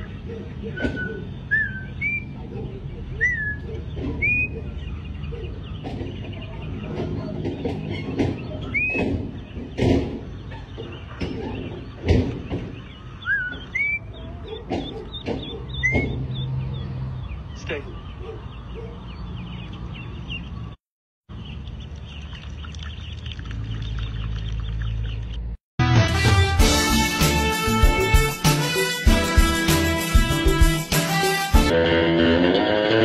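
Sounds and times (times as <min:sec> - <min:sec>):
ducklings peeping: 0:00.0 - 0:20.8, 0:21.4 - 0:25.5.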